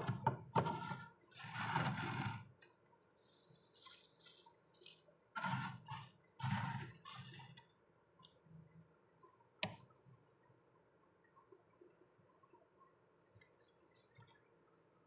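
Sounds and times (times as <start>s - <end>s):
fingers scraping freezer frost: 0.7s - 2.4s, 5.4s - 7.4s.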